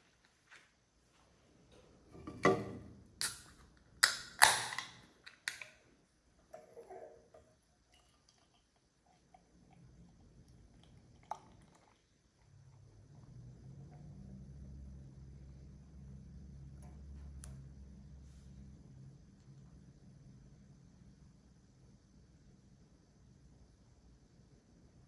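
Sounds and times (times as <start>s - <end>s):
can cracked open with hiss: 3.2s - 5.7s
beer pouring into glass: 10.2s - 12.6s.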